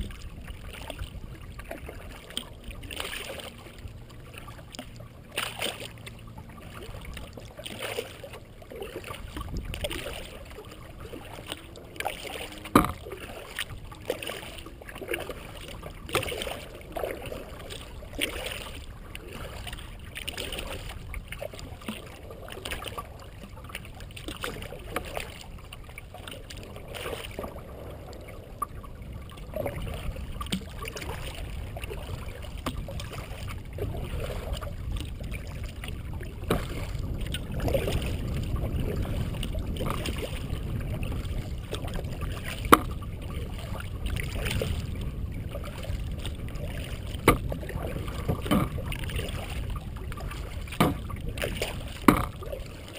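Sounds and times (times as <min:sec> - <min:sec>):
paddle splashing in water: 0:00.0 - 0:52.9
low rumble: 0:25.7 - 0:52.9.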